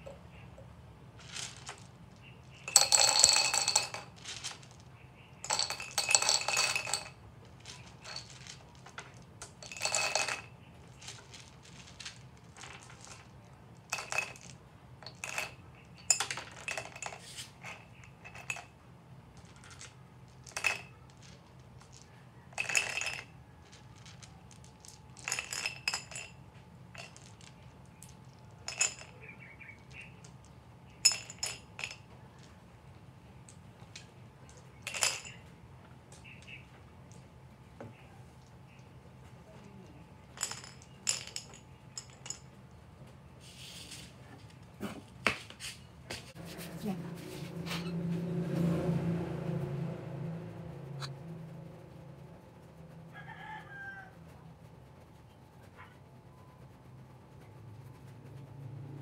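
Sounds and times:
glass gems clinking into vase: 1.3s - 18.8s, 22.6s - 23.4s, 24.0s - 30.4s, 31.0s - 32.0s, 34.5s - 35.5s, 40.3s - 42.5s.

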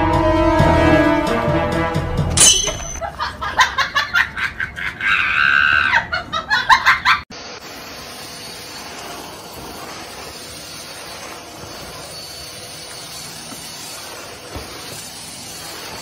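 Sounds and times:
vacuum cleaner running: 7.3s - 16.0s.

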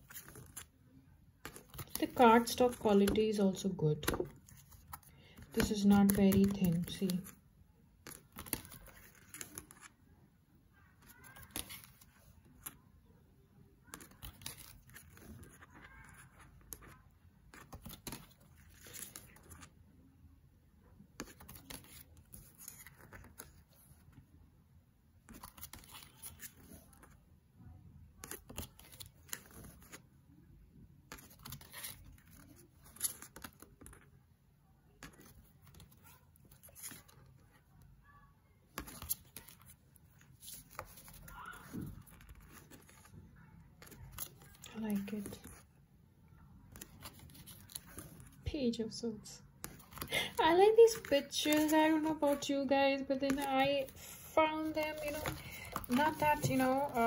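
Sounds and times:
cards sliding and flicking: 40.4s - 43.1s, 49.6s - 52.4s, 53.3s - 57.0s.

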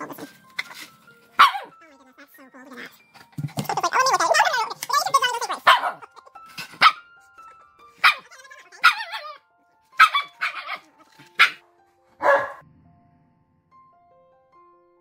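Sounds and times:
soft background music: 0.0s - 15.0s
dogs barking: 1.3s - 1.8s, 5.5s - 7.2s, 7.9s - 9.4s, 10.0s - 11.6s, 12.2s - 12.6s.

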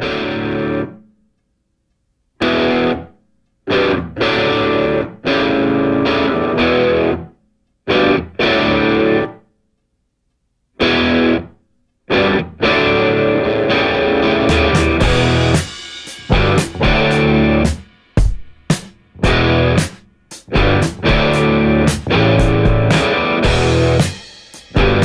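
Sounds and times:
distorted electric guitar chords: 0.0s - 1.0s, 2.4s - 3.1s, 3.7s - 7.3s, 7.9s - 9.4s, 10.8s - 11.5s, 12.1s - 17.9s, 19.1s - 25.0s.

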